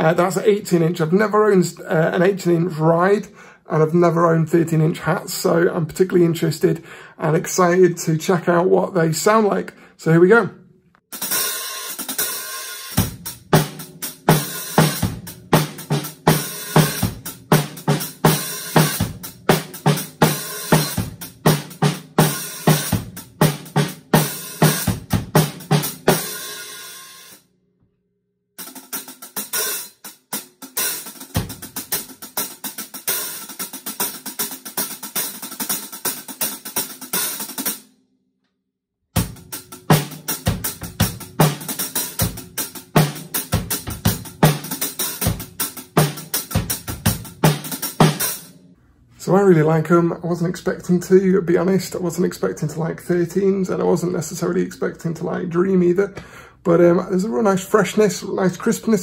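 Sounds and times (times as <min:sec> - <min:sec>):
snare drum: 0:11.2 - 0:27.3, 0:39.2 - 0:48.5.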